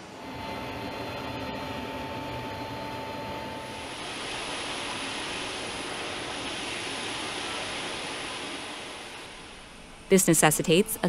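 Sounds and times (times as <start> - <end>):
jet engines running: 0.0 - 11.0
steady hum with thin tone: 0.0 - 11.0.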